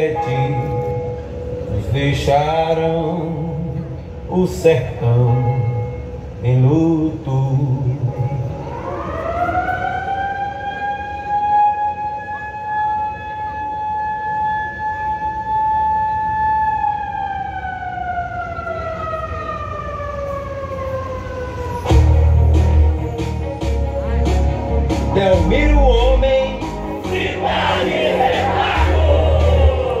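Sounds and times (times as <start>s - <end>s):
music: 21.8s - 30.0s.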